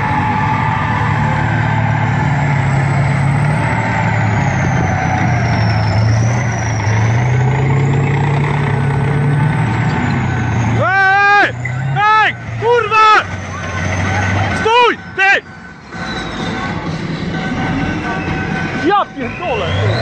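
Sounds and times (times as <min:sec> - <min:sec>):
tracked vehicle engine running: 0:00.0 - 0:20.0.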